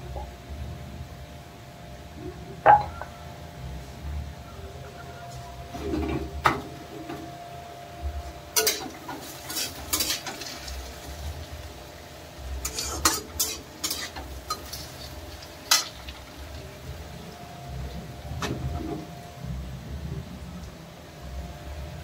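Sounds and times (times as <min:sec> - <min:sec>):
metal utensil scraping in pan: 0:08.6 - 0:11.2, 0:12.6 - 0:16.1.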